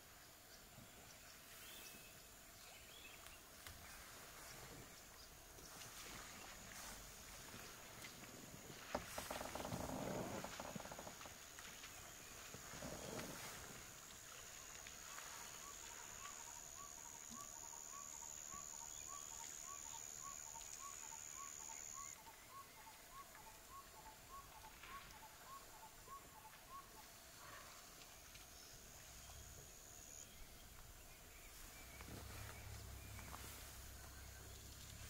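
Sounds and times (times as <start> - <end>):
high-pitched insect whine: 15.2 - 22.2
faint clicks: 27.9 - 29.4.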